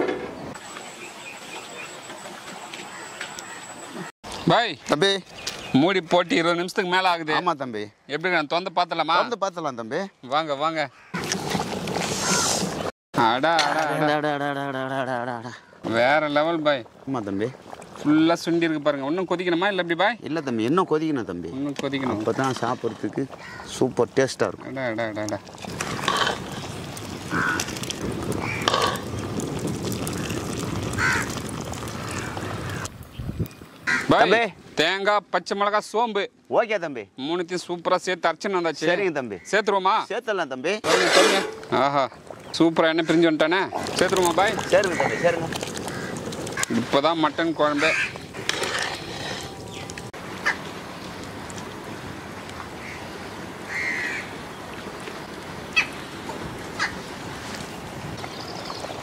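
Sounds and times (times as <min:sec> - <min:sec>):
crow cawing: 0:10.9 - 0:11.2, 0:23.4 - 0:23.8, 0:27.3 - 0:27.7, 0:28.4 - 0:28.9, 0:31.0 - 0:32.9, 0:33.8 - 0:34.1, 0:44.7 - 0:46.9, 0:47.7 - 0:48.2, 0:52.8 - 0:54.3, 0:56.8 - 0:57.0
pot bubbling: 0:15.8 - 0:19.8, 0:20.6 - 0:34.0, 0:40.8 - 0:59.0
wood fire crackling: 0:21.7 - 0:34.0, 0:43.7 - 0:52.6.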